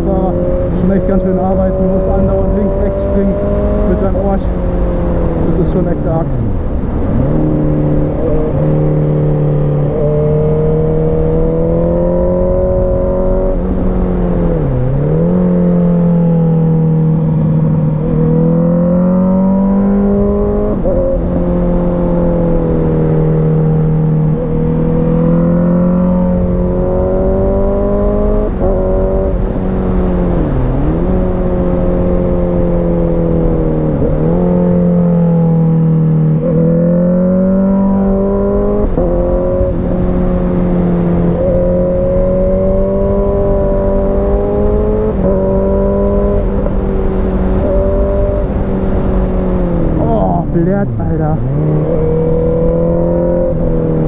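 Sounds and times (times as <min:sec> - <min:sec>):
wind rush: 0:00.0 - 0:23.4, 0:35.6 - 0:54.0
motorcycle engine revving: 0:00.0 - 0:54.0.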